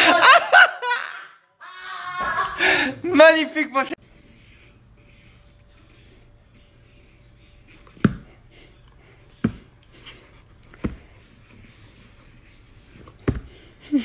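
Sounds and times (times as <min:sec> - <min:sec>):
marker scratching on paper: 0:04.1 - 0:08.3, 0:09.4 - 0:13.7.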